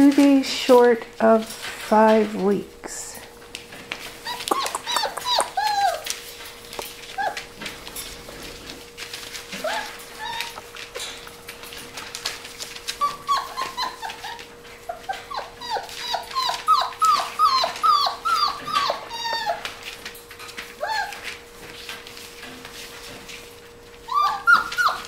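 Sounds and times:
paws scrabbling on paper: 0:03.4 - 0:25.0
puppy whining and yipping: 0:04.2 - 0:06.2, 0:07.1 - 0:07.5, 0:09.5 - 0:10.7, 0:12.9 - 0:19.8, 0:20.8 - 0:21.4, 0:24.0 - 0:25.0.

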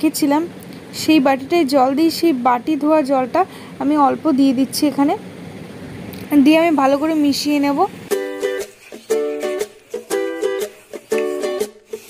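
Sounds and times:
plucked string tune: 0:08.1 - 0:12.0.

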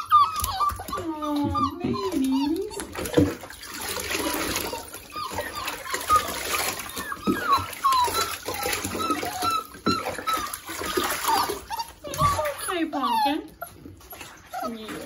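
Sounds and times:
puppy whimpering: 0:00.0 - 0:03.4, 0:04.1 - 0:15.0
water splashing: 0:00.3 - 0:15.0.

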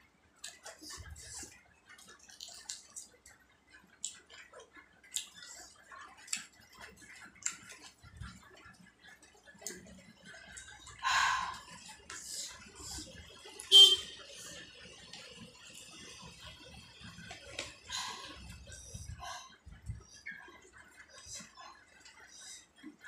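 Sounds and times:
close chewing: 0:00.4 - 0:13.7.

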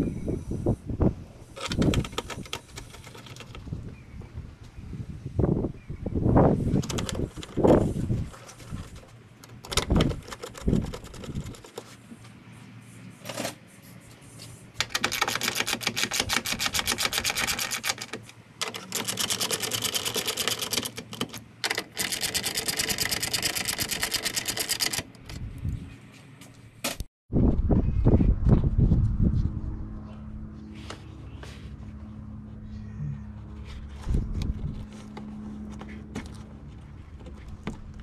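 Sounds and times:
hand ratchet clicking rapidly: 0:01.6 - 0:03.5.

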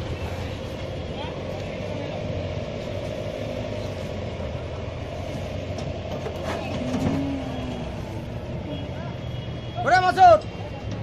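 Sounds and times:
truck engine idling: 0:00.0 - 0:11.0.

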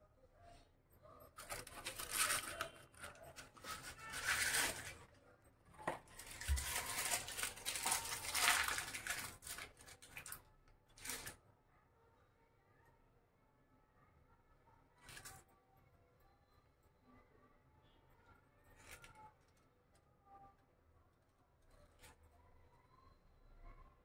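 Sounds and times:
packaging crinkling and tearing: 0:01.4 - 0:05.1, 0:06.0 - 0:10.4, 0:11.0 - 0:11.4.

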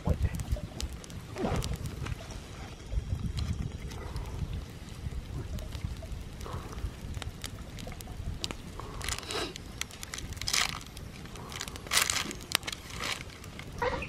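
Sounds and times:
wood fire crackling and popping: 0:00.0 - 0:14.0
stick scraping through embers: 0:08.9 - 0:14.0.

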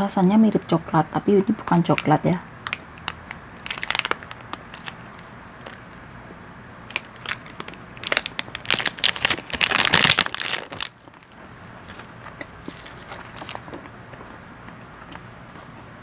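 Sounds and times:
foil wrapper crinkling: 0:01.8 - 0:05.9, 0:06.9 - 0:13.9.

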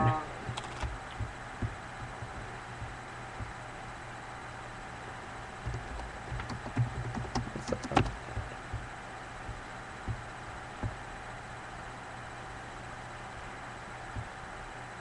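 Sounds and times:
low electrical hum: 0:00.0 - 0:15.0
irregular clicks and knocks: 0:05.6 - 0:08.9.

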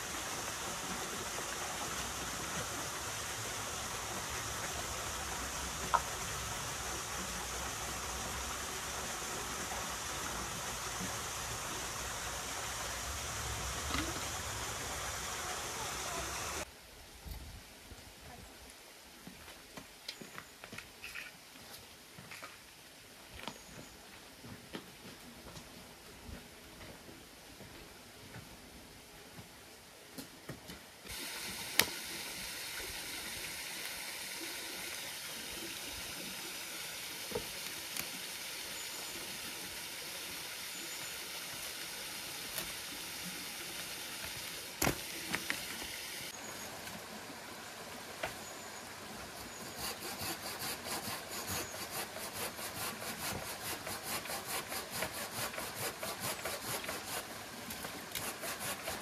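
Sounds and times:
steady hiss: 0:00.0 - 0:19.2, 0:31.0 - 0:59.0
hand saw cutting wood: 0:49.4 - 0:59.0.

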